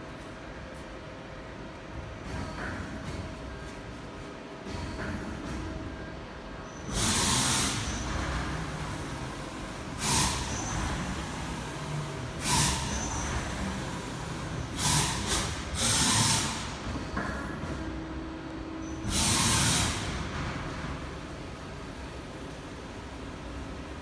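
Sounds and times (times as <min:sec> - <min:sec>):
compressed air blasts hissing: 0:19.0 - 0:20.2.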